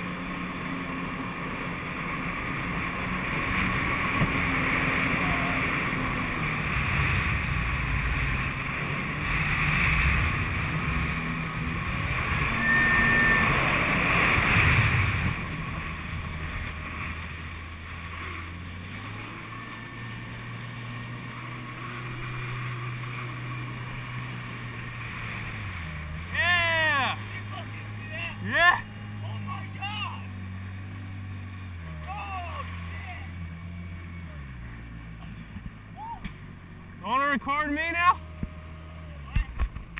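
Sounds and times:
jet ski engine running: 0.0s - 39.9s
water splashing: 0.2s - 34.1s
wind rush: 5.4s - 16.8s.

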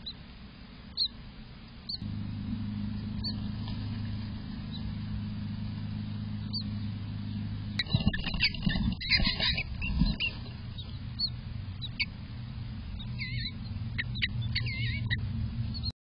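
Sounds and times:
steady low hum: 0.0s - 15.9s
high squeaky bird chirps: 6.4s - 6.8s, 7.8s - 12.1s, 13.0s - 15.9s.

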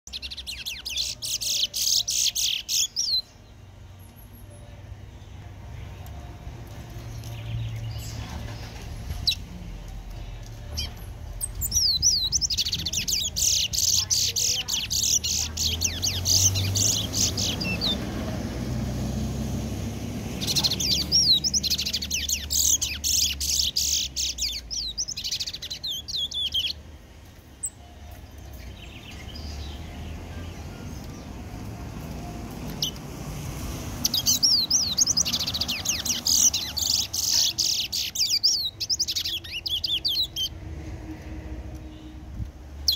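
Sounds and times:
songbird twittering: 0.1s - 3.4s, 10.1s - 18.2s, 20.3s - 26.8s, 34.0s - 40.5s.

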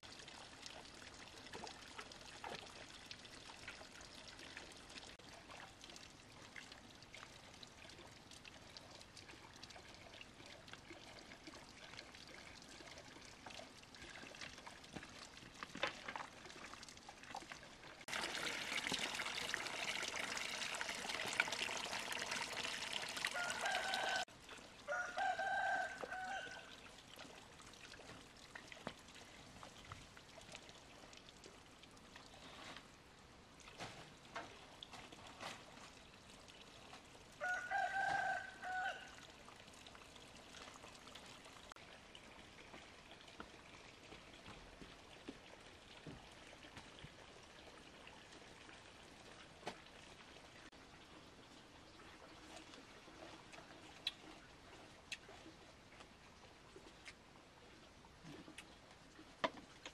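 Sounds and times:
water pouring: 0.0s - 56.1s
rooster crowing: 23.3s - 24.3s, 24.9s - 26.7s, 37.4s - 39.2s.

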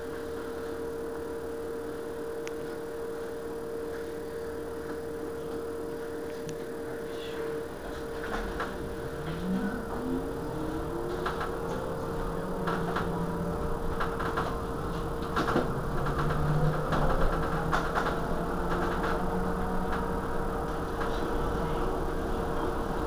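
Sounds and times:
steady electric hum with tone: 0.0s - 17.6s.

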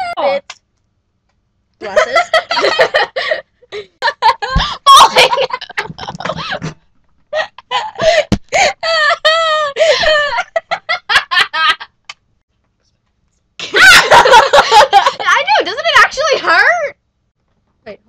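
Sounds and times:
girls laughing: 1.8s - 12.0s, 13.6s - 16.7s.

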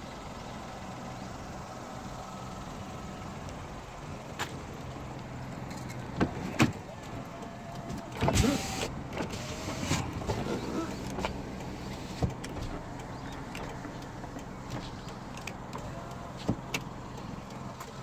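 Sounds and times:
car door clunk and rustle: 5.6s - 17.0s.

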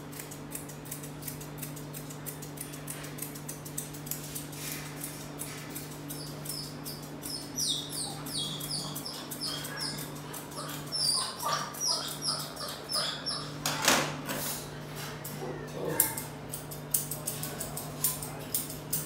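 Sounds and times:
scissors snipping with metallic ring: 0.1s - 11.0s, 16.0s - 19.0s.

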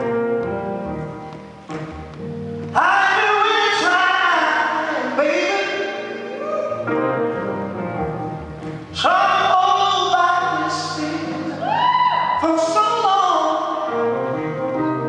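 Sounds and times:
band accompaniment: 0.0s - 11.6s
man singing soul: 2.7s - 7.5s, 8.7s - 15.0s.

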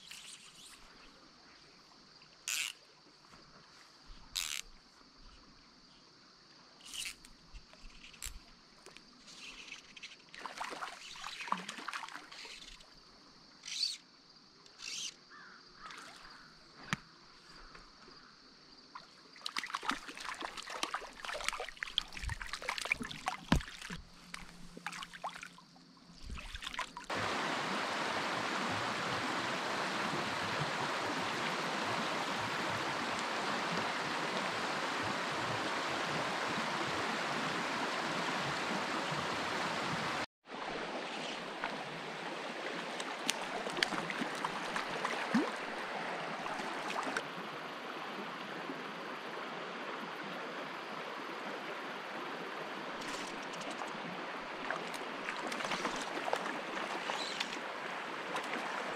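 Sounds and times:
water rushing over rocks: 26.2s - 47.8s.

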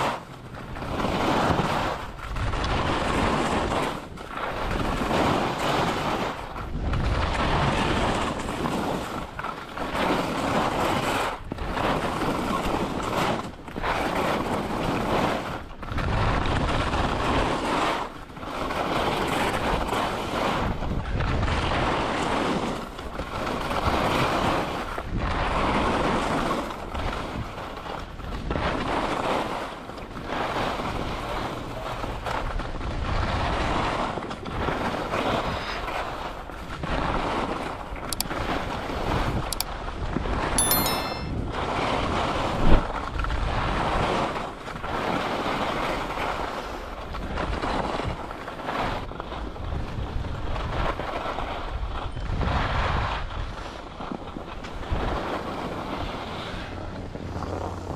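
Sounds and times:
wind rushing over microphone: 0.0s - 17.8s, 47.0s - 57.9s
skis scraping on snow: 0.9s - 6.4s.

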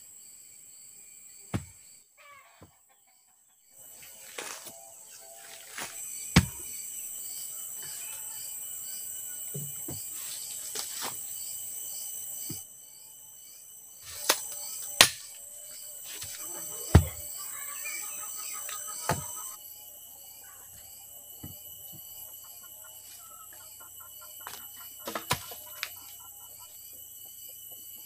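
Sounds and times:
insects droning: 0.0s - 28.0s
wooden club knocking stake: 1.5s - 1.8s, 5.8s - 6.6s.

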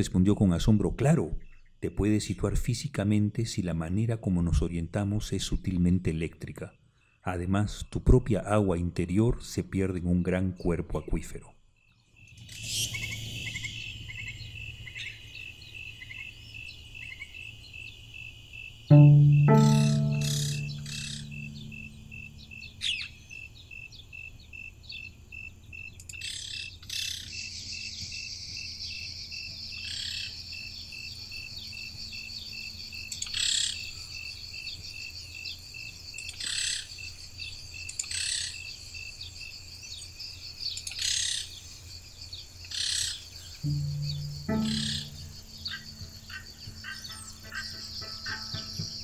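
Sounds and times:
high-pitched insect call pulsing: 43.7s - 49.0s.

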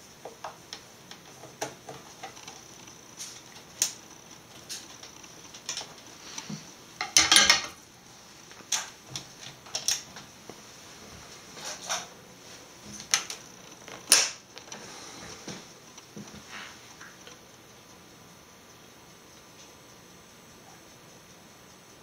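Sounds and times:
clattering: 7.0s - 7.8s.

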